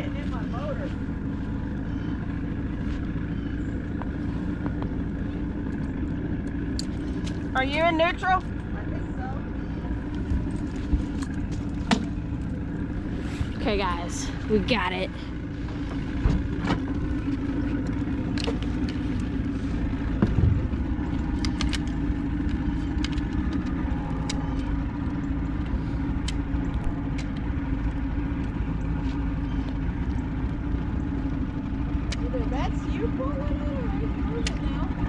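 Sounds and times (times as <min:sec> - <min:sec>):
outboard motor idling: 0:00.0 - 0:35.0.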